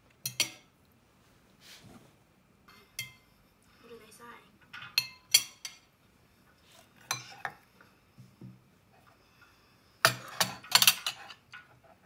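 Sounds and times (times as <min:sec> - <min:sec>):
cutlery and dishes clattering: 0:00.2 - 0:00.7, 0:02.7 - 0:03.2, 0:04.7 - 0:05.9, 0:07.0 - 0:07.6, 0:10.0 - 0:12.0
dishes clinking: 0:00.2 - 0:00.8, 0:02.7 - 0:03.4, 0:04.6 - 0:05.9, 0:07.0 - 0:07.8, 0:10.0 - 0:12.0.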